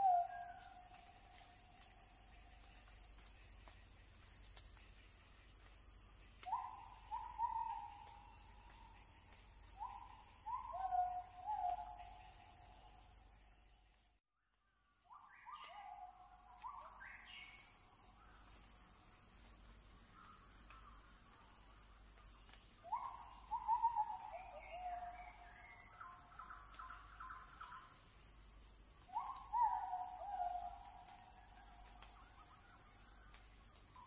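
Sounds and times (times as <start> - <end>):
bird calling: 6.4 - 12.3.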